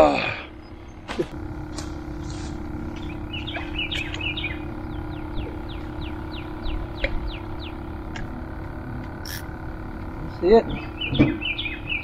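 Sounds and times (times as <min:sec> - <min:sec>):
steady low hum: 0:00.0 - 0:12.0
songbird chirping: 0:02.2 - 0:08.3, 0:10.6 - 0:12.0.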